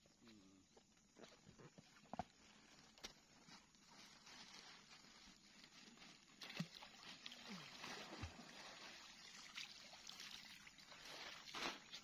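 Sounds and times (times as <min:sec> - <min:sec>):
water sloshing and splashing: 0:04.0 - 0:12.0.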